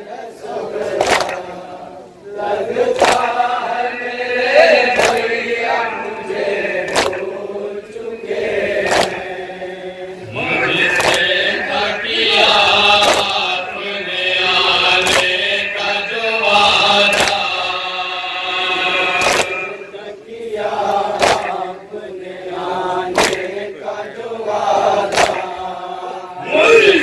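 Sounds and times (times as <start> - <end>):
men chanting a lament: 0.0 - 27.0
hands slapping chests: 0.9 - 1.5, 2.8 - 3.5, 4.8 - 5.4, 6.9 - 7.4, 8.8 - 9.2, 10.9 - 11.5, 12.3 - 13.6, 15.0 - 15.5, 17.1 - 17.5, 19.2 - 19.8, 21.1 - 21.7, 23.1 - 23.6, 25.0 - 25.6.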